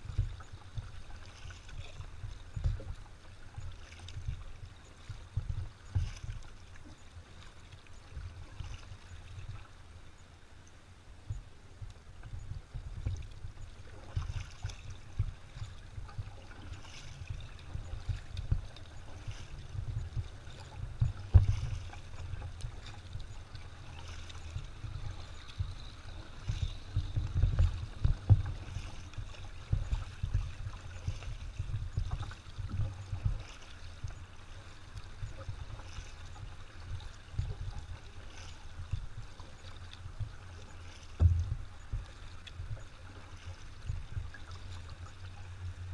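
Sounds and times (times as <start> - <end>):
low uneven rumble: 0.0 - 45.9
kayak paddle splashing in water: 13.0 - 45.9.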